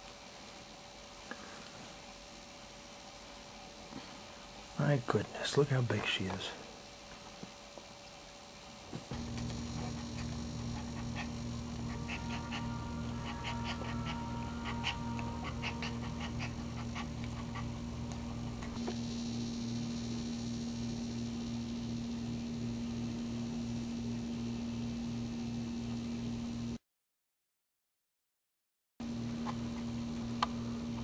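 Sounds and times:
steady low hum: 0.0s - 26.8s, 29.0s - 31.0s
dog whining softly: 9.8s - 17.8s.

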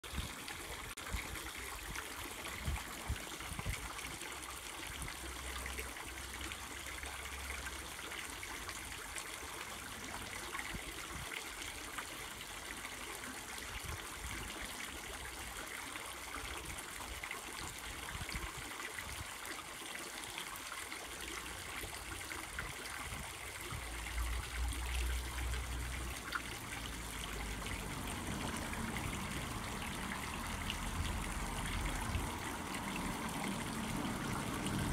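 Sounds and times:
fountain splashing into basin: 0.0s - 34.9s.

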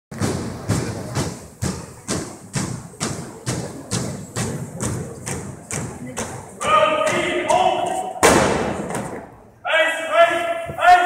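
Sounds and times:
marching stomps on wooden floor: 0.1s - 7.6s.

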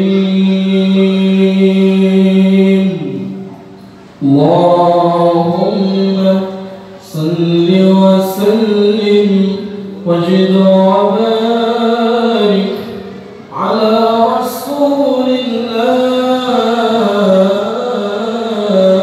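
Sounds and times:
man reciting melodically: 0.0s - 3.5s, 4.2s - 19.0s.

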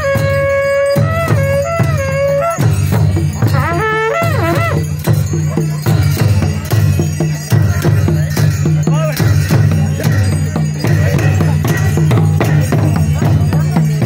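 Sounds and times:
high wavering melody: 0.0s - 5.9s
hand drums beating: 0.0s - 14.0s.

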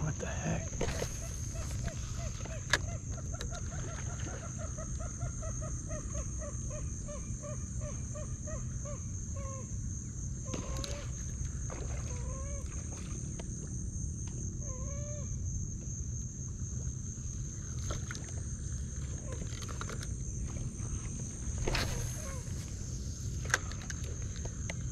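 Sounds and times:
bird calling: 0.2s - 9.7s, 21.6s - 22.9s
steady high-pitched buzz: 15.3s - 24.9s.

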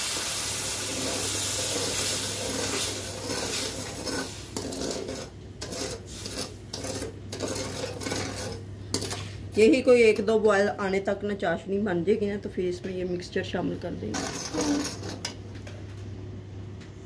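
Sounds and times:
pan hissing: 0.0s - 6.6s
metal spoon scraping a pan: 0.9s - 9.4s, 14.1s - 15.4s.

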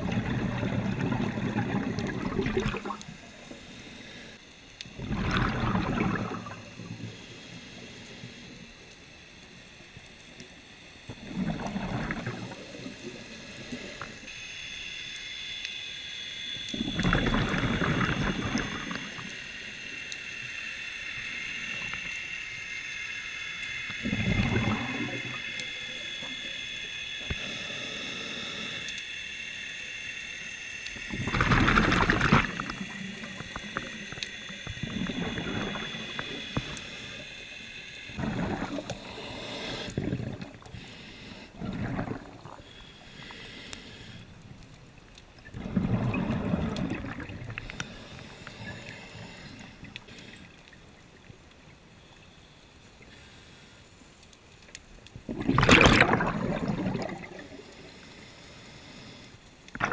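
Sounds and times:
exhaled bubbles gurgling underwater: 0.0s - 7.8s, 11.0s - 14.3s, 16.6s - 19.5s, 24.0s - 26.6s, 31.0s - 37.4s, 38.1s - 43.4s, 44.7s - 51.8s, 55.1s - 58.2s, 59.7s - 59.9s.

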